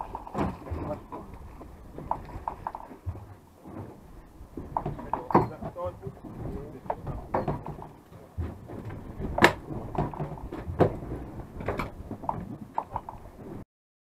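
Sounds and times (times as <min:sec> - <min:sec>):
wind and sea rumble: 0:00.0 - 0:13.6
knocks on boat deck: 0:04.5 - 0:12.6.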